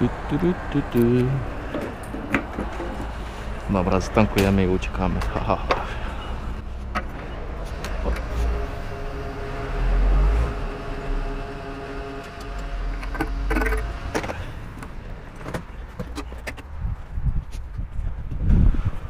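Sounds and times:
fuel dispenser humming: 5.6s - 15.0s.

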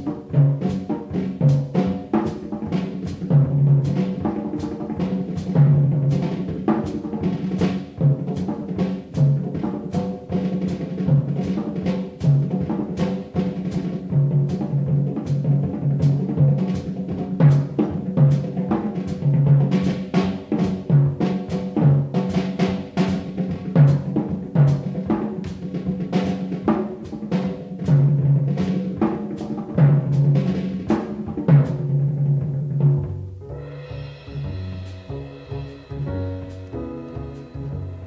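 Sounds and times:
drums on toms and snare: 0.0s - 38.0s
cymbal strikes: 33.4s - 38.0s.

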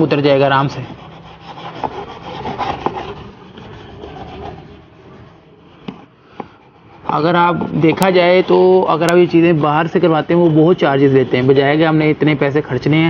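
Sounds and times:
toothbrush scrubbing metal: 0.4s - 5.2s.

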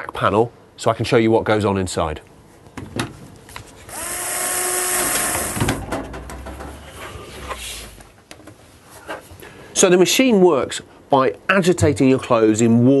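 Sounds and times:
electric drill-driver spinning: 3.9s - 5.8s.

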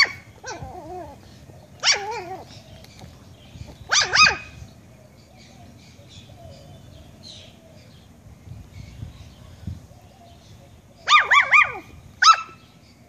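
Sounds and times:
puppy barking high-pitched: 0.0s - 1.2s, 1.8s - 2.4s, 3.9s - 4.6s, 11.0s - 12.6s.

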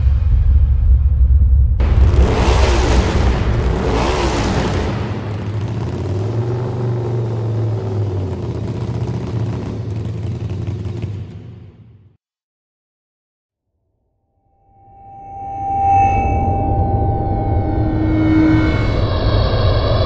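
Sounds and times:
motorcycle engine revving: 1.8s - 12.2s.

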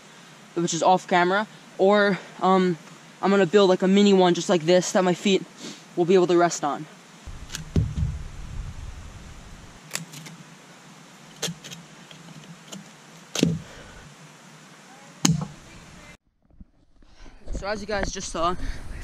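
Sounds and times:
low hiss: 0.0s - 16.2s
low rumble: 7.3s - 9.8s.

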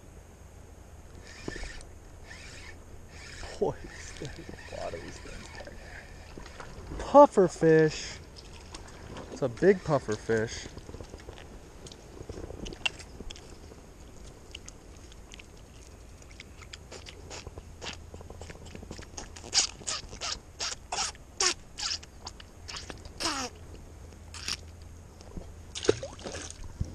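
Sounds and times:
puffer fish squeaks and clicks: 1.2s - 6.7s, 12.6s - 23.5s, 24.4s - 24.7s.

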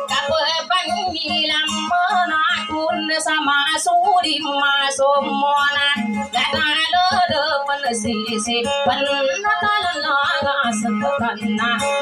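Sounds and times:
acoustic guitar: 0.0s - 12.0s
woman singing into microphone: 0.0s - 12.0s.

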